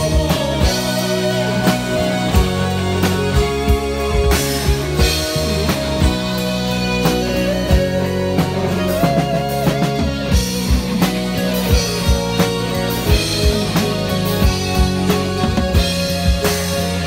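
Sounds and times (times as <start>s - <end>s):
drum kit beat: 0.0s - 17.0s
rock band playing: 0.0s - 17.0s.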